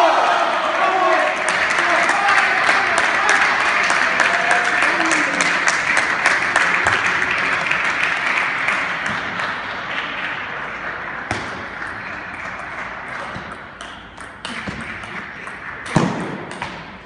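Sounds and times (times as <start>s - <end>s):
spectators applauding: 0.0s - 11.2s.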